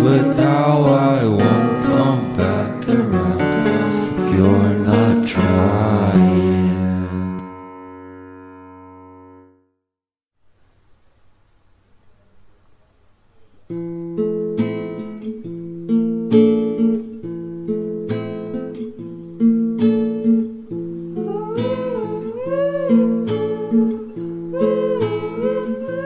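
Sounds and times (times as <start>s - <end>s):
person singing: 0.0s - 7.5s, 21.2s - 26.0s
acoustic guitar chords: 0.0s - 9.7s, 13.7s - 26.0s.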